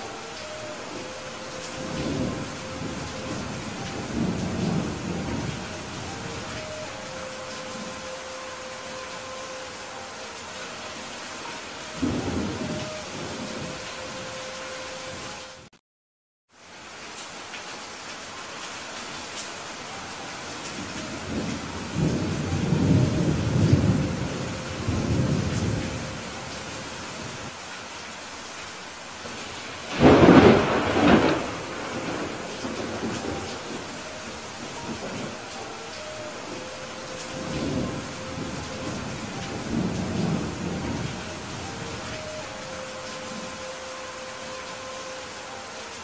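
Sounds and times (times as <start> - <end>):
thunder rumbling: 0.0 - 9.4, 11.5 - 14.4, 20.8 - 27.5, 29.2 - 43.9
heavy rain: 0.0 - 15.8, 16.5 - 46.0.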